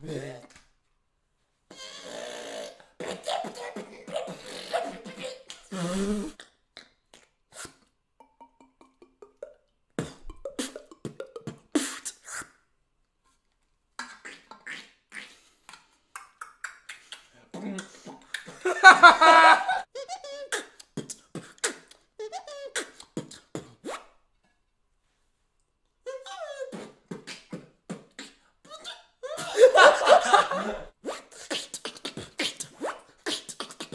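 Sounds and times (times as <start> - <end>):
held pitched vocal sound: 1.7 - 12.5, 26.1 - 33.9
beatboxing clicks pops and hisses: 7.2 - 7.9, 10.0 - 12.6, 14.7 - 18.6, 20.6 - 22.1, 22.7 - 24.1, 26.7 - 28.4, 31.0 - 33.9.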